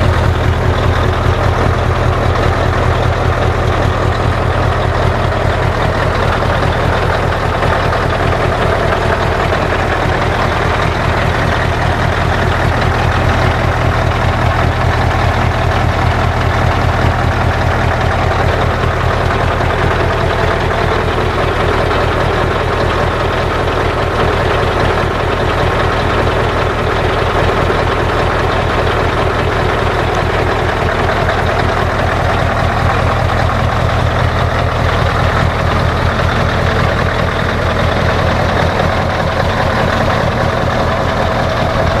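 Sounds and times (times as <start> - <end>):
diesel truck engine idling: 0.0 - 42.0.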